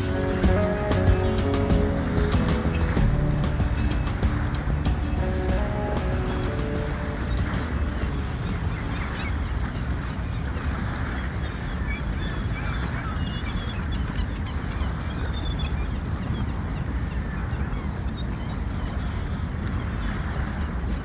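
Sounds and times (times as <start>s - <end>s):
steady low rumble: 0.0s - 10.7s
high bird calls: 0.0s - 19.4s.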